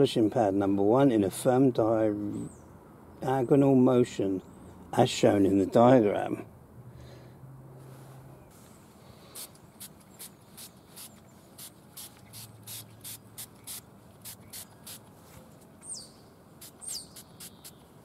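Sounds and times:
spray bottle squirts: 9.4s - 15.0s, 16.6s - 17.8s
bird chirping: 9.6s - 13.8s, 14.4s - 15.1s, 15.8s - 18.0s.

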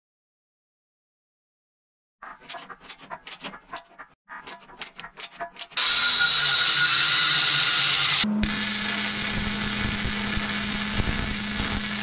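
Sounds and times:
angle grinder grinding steel: 2.2s - 12.0s
welder arc crackling and hissing: 6.6s - 12.0s.

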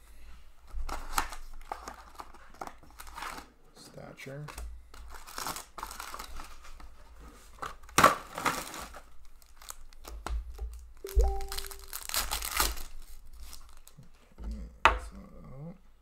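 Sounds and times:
foil wrapper tearing and crinkling: 0.9s - 3.5s, 5.0s - 6.9s, 7.6s - 14.0s.

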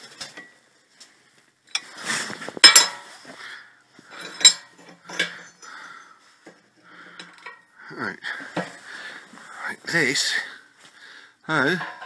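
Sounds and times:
steel tubes clattering on workbench: 1.7s - 3.2s, 4.1s - 5.7s, 7.1s - 7.7s, 11.5s - 12.0s.

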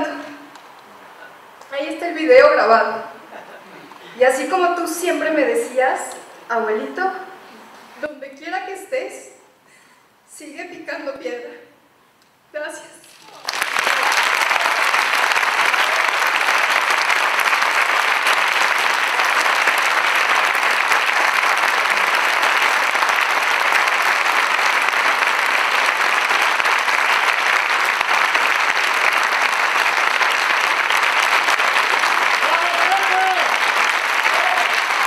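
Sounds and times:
audience applauding: 13.0s - 35.0s.

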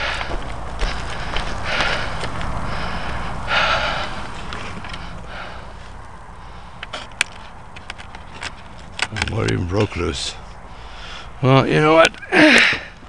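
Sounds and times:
man breathing heavily: 0.0s - 7.6s, 10.4s - 11.4s, 12.2s - 13.0s.

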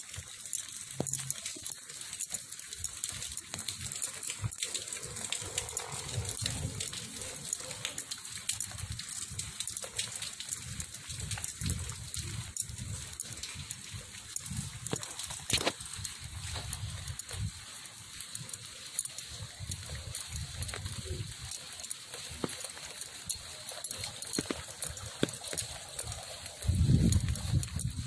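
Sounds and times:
rain on wet road: 4.8s - 8.0s
footsteps: 9.7s - 27.4s.

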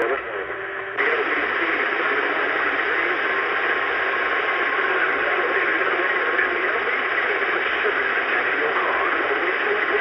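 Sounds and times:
radio static: 0.0s - 10.0s.

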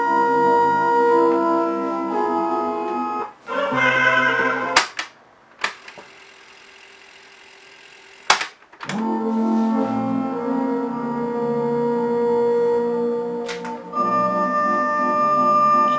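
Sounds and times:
keyboard music with organ tone: 0.0s - 5.0s, 8.9s - 15.9s.

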